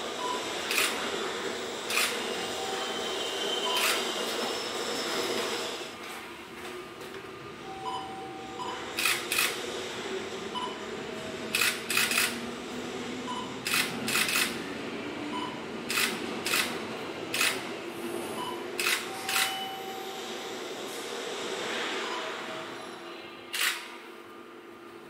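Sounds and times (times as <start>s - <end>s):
train rolling noise: 0.0s - 25.0s
train wheels clicking over rail joint: 11.5s - 12.4s, 15.9s - 17.6s.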